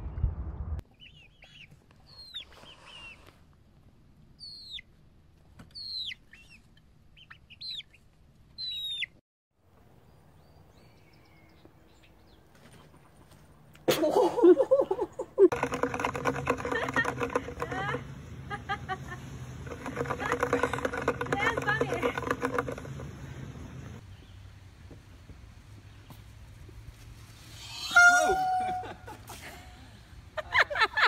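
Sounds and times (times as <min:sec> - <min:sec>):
chickens chirping: 0:00.9 - 0:03.3, 0:05.8 - 0:09.2.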